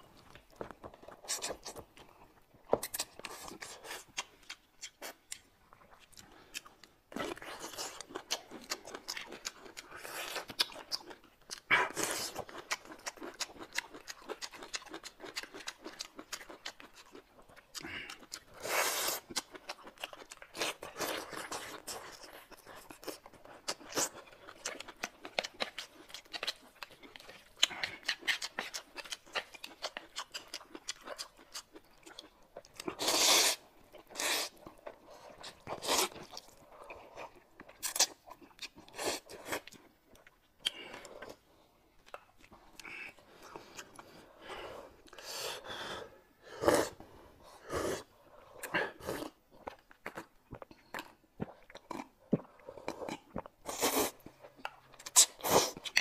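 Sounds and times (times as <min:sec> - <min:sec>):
people chewing: 0:00.1 - 0:56.0
slurping soup: 0:32.9 - 0:37.3, 0:42.8 - 0:49.4, 0:52.3 - 0:54.5.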